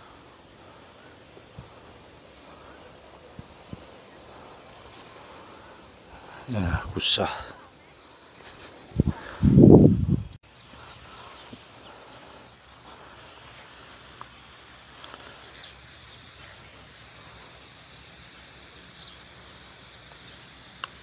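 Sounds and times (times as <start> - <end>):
high insect drone: 0.0 - 21.0
bird chirps: 18.9 - 20.5.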